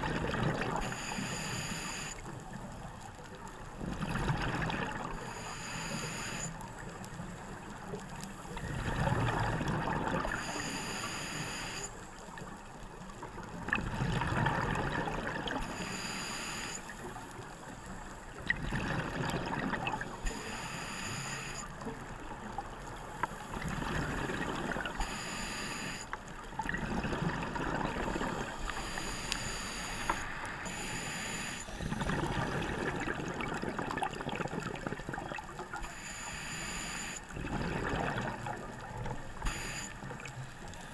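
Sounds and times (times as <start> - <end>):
regulator hissing inhale: 0.8 - 2.3, 5.1 - 6.9, 10.3 - 12.1, 15.6 - 17.2, 20.2 - 21.8, 24.9 - 26.2, 28.2 - 32.1, 35.8 - 37.3, 39.4 - 40.9.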